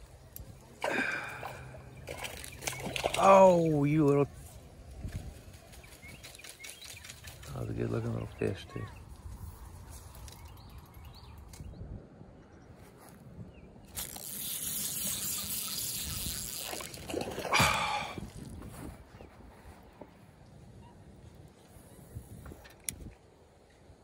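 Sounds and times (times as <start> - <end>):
lure splashing into water: 0.8 - 3.7, 13.9 - 18.5
fishing line whooshing: 13.9 - 18.6.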